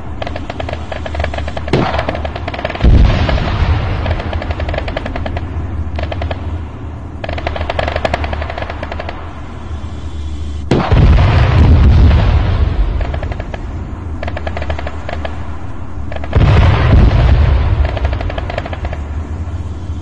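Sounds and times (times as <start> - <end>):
automatic gunfire: 0.2 - 6.4, 7.2 - 9.2, 10.7 - 11.2, 14.2 - 15.4, 17.7 - 19.0
loud deep blast: 1.6 - 6.0, 10.7 - 14.2, 16.3 - 19.4.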